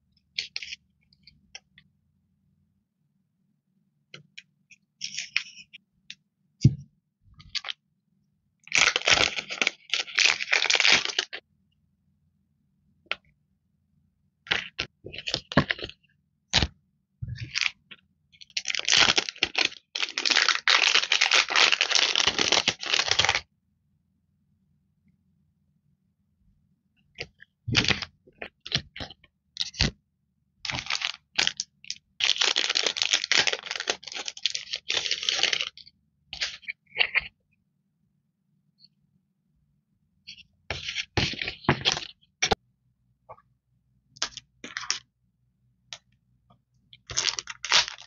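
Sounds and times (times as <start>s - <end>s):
plastic packaging crinkling: 8.7s - 11.4s, 18.5s - 23.4s, 30.7s - 31.6s, 32.2s - 35.8s, 47.0s - 48.0s.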